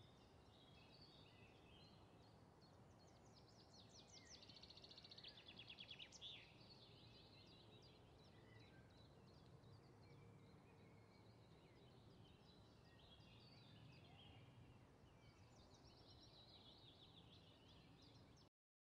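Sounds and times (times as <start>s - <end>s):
faint songbirds trilling and chirping: 0.0s - 18.5s.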